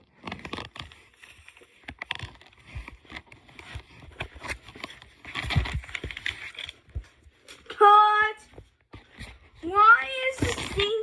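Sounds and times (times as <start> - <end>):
paper rustling: 0.0 - 7.9.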